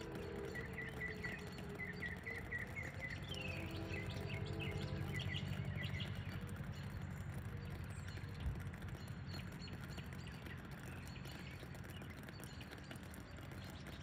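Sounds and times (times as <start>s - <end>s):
distant warning siren: 0.0s - 8.9s
birds chirping: 0.0s - 14.0s
low background rumble: 0.0s - 14.0s.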